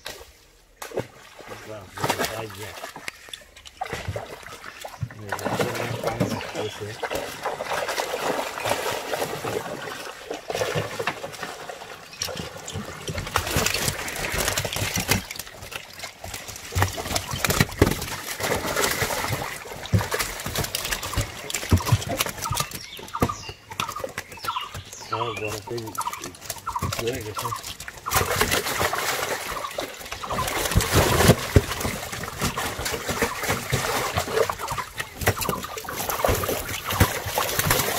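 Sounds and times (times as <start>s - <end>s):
water splashing: 0.0s - 37.9s
fish flapping wet slaps: 12.2s - 25.0s, 26.0s - 37.9s.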